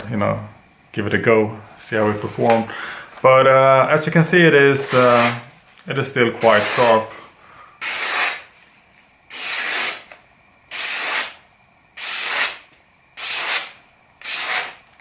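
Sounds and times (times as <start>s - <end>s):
knife slicing through paper: 7.8s - 8.6s, 12.0s - 12.6s, 13.2s - 14.8s.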